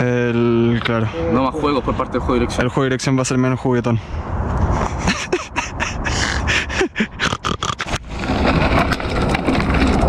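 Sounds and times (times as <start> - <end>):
wind on microphone: 4.0 - 10.0
person grunting: 6.0 - 7.8
clicks and scrapes: 7.5 - 10.0
bike tyres rolling over rock: 7.8 - 10.0.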